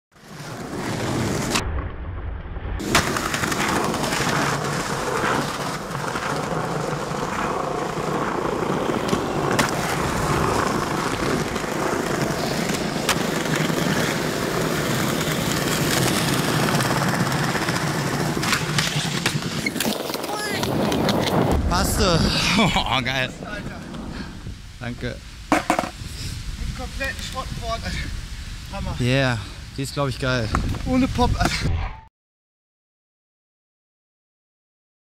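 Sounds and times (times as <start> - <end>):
skateboard wheels rolling: 0.1 - 1.9, 2.8 - 28.2
skateboard clacking on ground: 2.8 - 21.5, 25.5 - 26.0.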